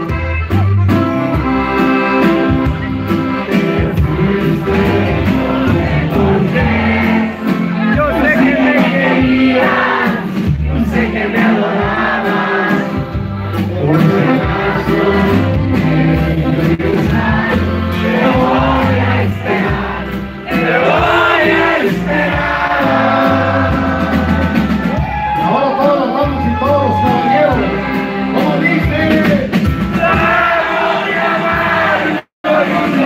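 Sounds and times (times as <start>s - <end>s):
button accordion: 0.0s - 24.9s
steady bass line: 0.0s - 30.6s
crowd noise: 0.0s - 33.0s
man singing: 3.5s - 12.9s, 13.8s - 19.6s.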